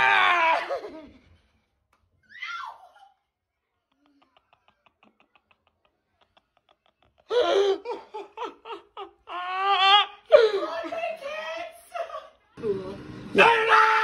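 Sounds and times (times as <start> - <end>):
woman laughing hard: 4.1 - 10.0.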